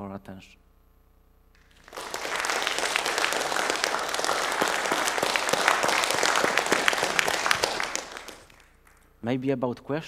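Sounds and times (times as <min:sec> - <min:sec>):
audience applauding: 0:01.6 - 0:09.1.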